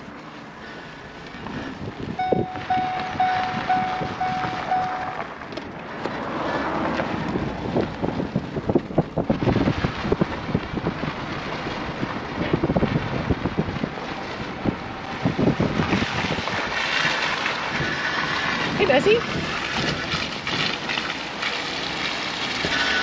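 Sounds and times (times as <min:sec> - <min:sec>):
truck engine rumble: 0:00.0 - 0:23.0
wind on microphone: 0:01.4 - 0:05.3, 0:06.6 - 0:21.0
beeping tone: 0:02.2 - 0:05.2.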